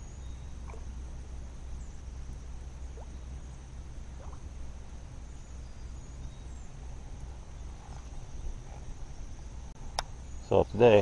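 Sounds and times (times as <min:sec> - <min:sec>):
faint rising chirps: 0:00.0 - 0:10.8
high insect hum: 0:00.0 - 0:11.0
wind rumble on microphone: 0:04.1 - 0:11.0.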